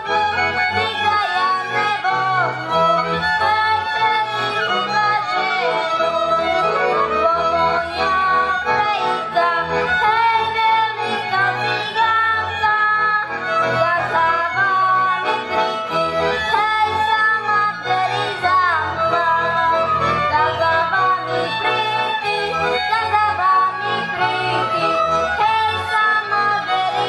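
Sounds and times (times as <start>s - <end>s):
folk band playing: 0.0s - 27.0s
boy singing: 7.2s - 15.2s, 16.4s - 27.0s.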